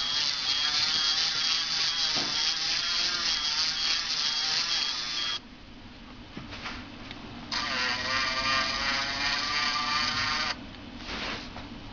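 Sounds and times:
small electric motor whining: 0.0 - 5.4, 7.5 - 10.6.

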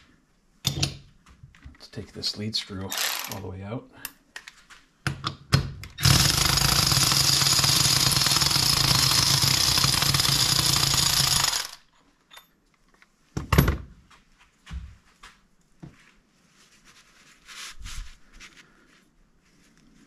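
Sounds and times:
handheld power tool running: 2.9 - 3.4, 6.0 - 11.8.

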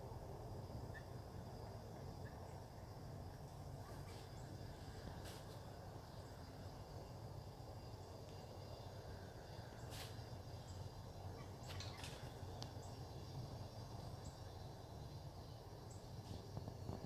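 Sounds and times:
high insect hum: 0.0 - 17.0
low wind rumble: 0.0 - 17.0.

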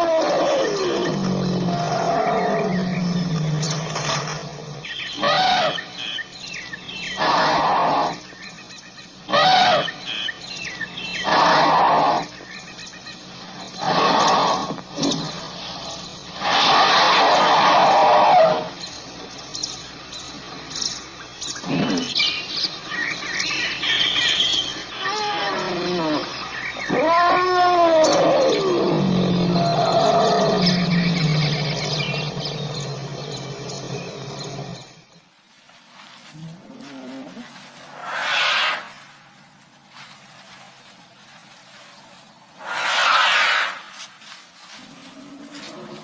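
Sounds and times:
elephant calling: 0.0 - 8.6, 9.2 - 12.8, 13.5 - 18.8, 21.5 - 35.0, 36.4 - 39.2, 42.5 - 44.0
faint chirps: 0.0 - 35.3.

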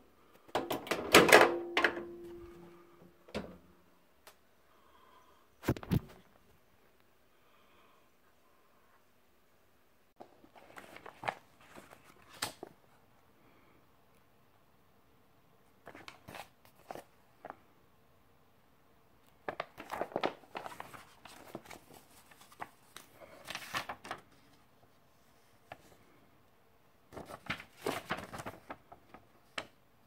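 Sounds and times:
paper rustling and crackling: 10.2 - 12.8, 15.8 - 17.6, 19.3 - 26.0, 27.1 - 29.8.

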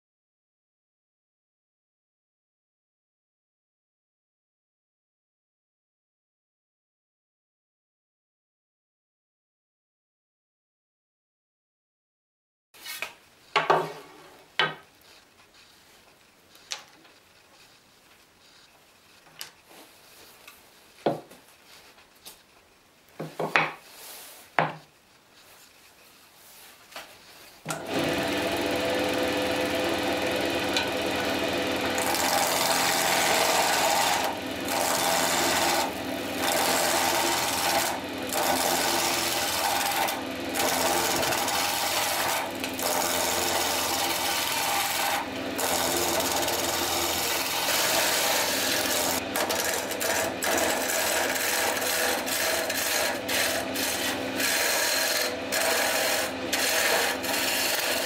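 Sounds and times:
tool shaving spinning wood: 27.7 - 58.0
wood lathe motor hum: 27.7 - 58.0.

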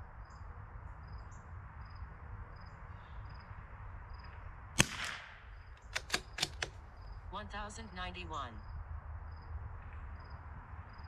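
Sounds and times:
rifle bolt clicks: 4.8 - 6.8
rifle shot: 4.8 - 6.8.

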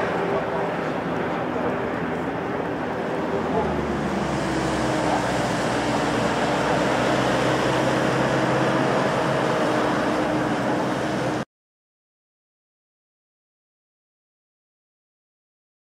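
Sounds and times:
jet engines idling: 0.0 - 11.4.

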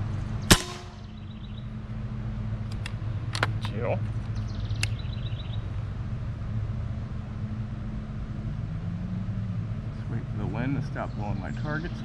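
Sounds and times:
air rifle click: 2.7 - 3.8.

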